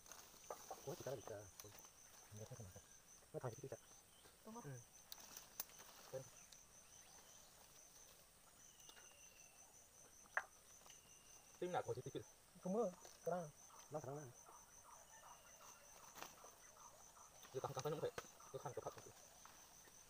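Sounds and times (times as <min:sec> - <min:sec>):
insects chirping: 0:00.0 - 0:20.0.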